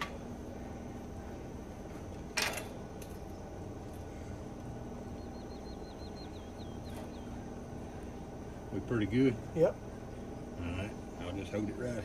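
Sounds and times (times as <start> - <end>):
low steady hum: 0.0 - 12.0
small bird trilling: 5.1 - 7.4.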